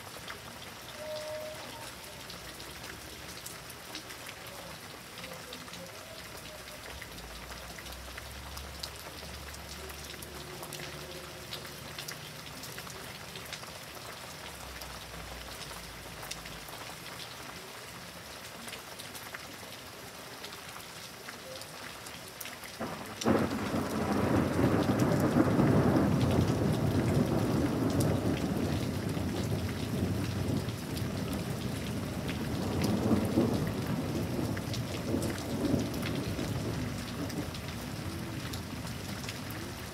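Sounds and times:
steady rain falling: 0.0 - 39.9
thunderclap and rolling thunder: 22.8 - 38.9.

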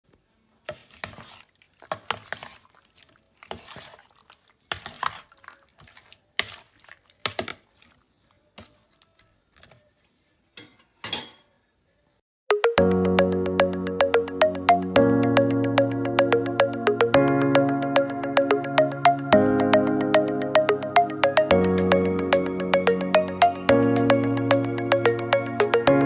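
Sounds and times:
meat squelching in a bowl: 0.6 - 10.1.

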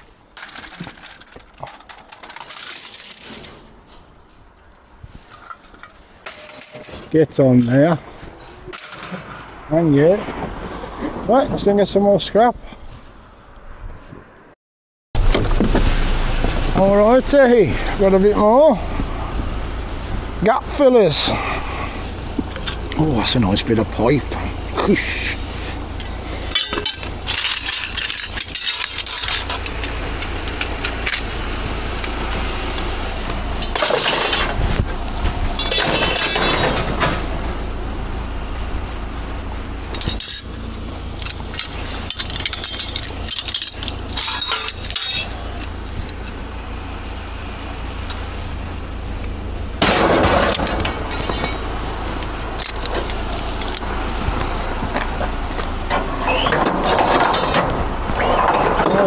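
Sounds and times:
scrap metal clanking: 0.0 - 9.5, 21.2 - 32.5, 33.3 - 37.6, 39.2 - 46.4, 49.8 - 59.0
low rumble: 15.2 - 59.0.

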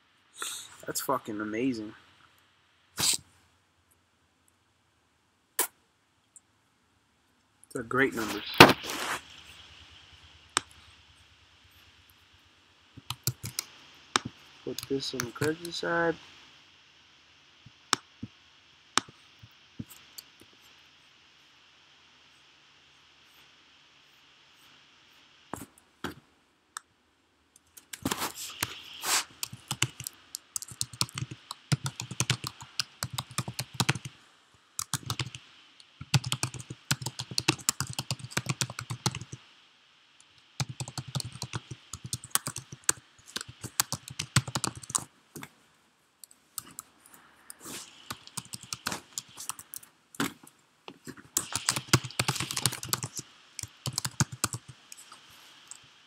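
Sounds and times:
typing on computer keyboard: 13.0 - 15.6, 29.4 - 34.1, 34.8 - 35.4, 36.0 - 39.4, 40.6 - 45.0, 48.1 - 49.8, 51.4 - 55.1.

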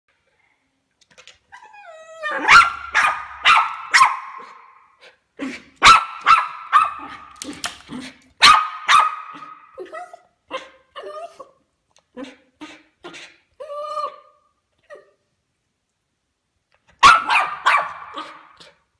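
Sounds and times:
dog whining: 1.5 - 3.0
dog barking: 2.4 - 4.8, 5.8 - 7.3, 8.4 - 9.7, 17.0 - 18.6.

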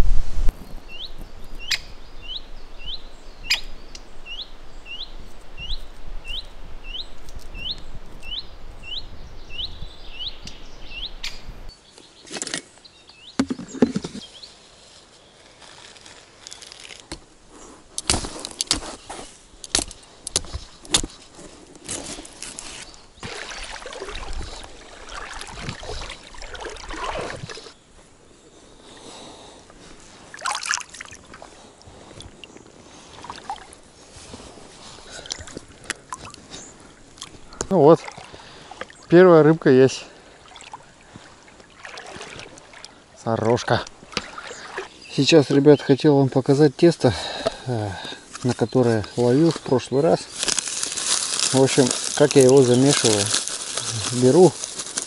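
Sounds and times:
fishing tackle clicks and rustling: 15.5 - 17.3, 50.3 - 55.0.

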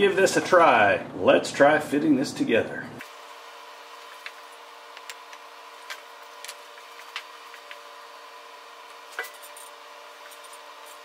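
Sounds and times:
shop hum: 0.0 - 11.0.

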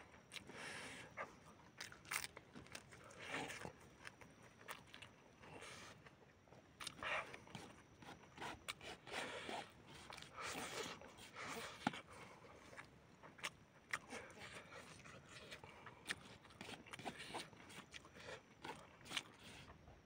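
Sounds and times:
person slurping and chewing noodles: 6.8 - 19.7.

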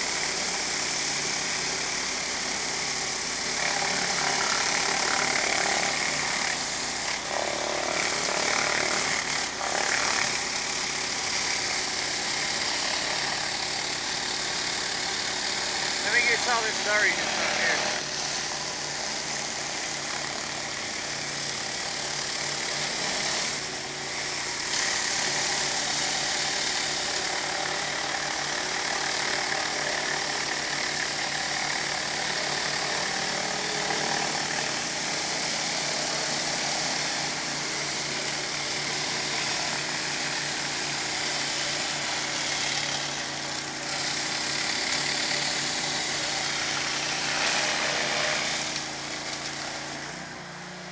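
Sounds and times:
pressure washer engine running: 0.0 - 50.9
water jets hissing on concrete: 14.6 - 18.5, 34.5 - 49.6.

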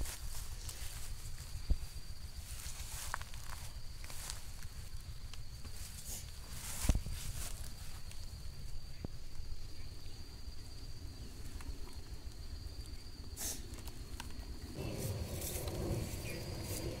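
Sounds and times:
high insect drone: 0.0 - 17.0
rustle of grass and leaves: 0.0 - 17.0
low microphone rumble: 14.8 - 17.0.

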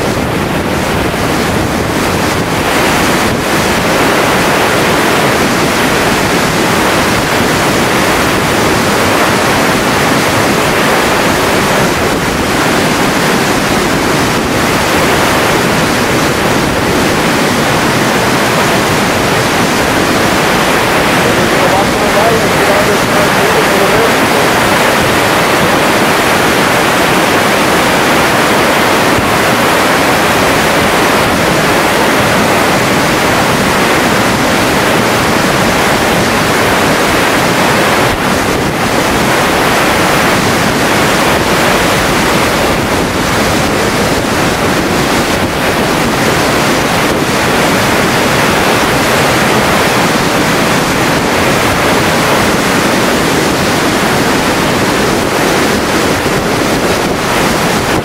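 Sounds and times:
flood water rushing: 0.0 - 58.0.

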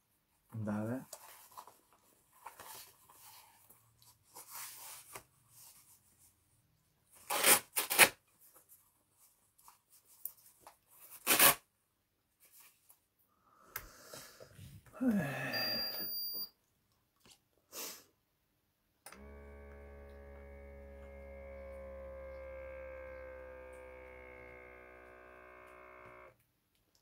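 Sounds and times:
velcro ripping: 7.2 - 8.2, 11.0 - 11.7.

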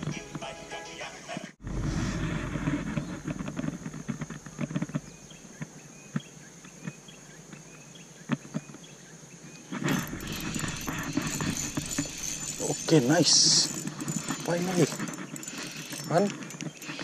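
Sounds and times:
high insect drone: 1.9 - 17.0
fishing reel cranking: 9.9 - 17.0.

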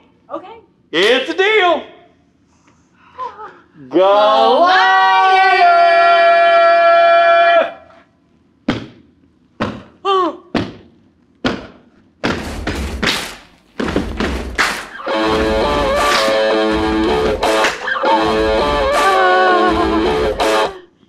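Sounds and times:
sharp knocks and thumps: 10.6 - 15.1
guitar music: 14.9 - 20.8.

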